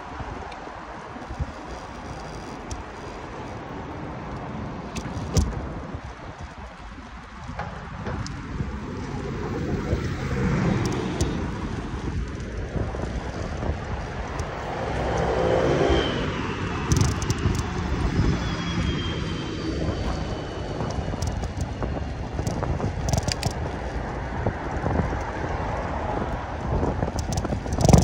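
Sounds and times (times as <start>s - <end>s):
wind on microphone: 0.0s - 28.0s
tyre rumble on asphalt: 1.0s - 28.0s
vehicle passing: 7.6s - 21.0s
sharp rattles: 16.8s - 18.2s, 20.0s - 24.0s, 27.0s - 28.0s.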